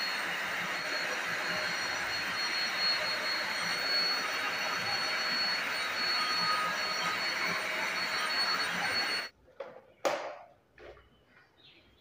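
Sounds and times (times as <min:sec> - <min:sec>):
vacuum cleaner whining: 0:00.0 - 0:09.3.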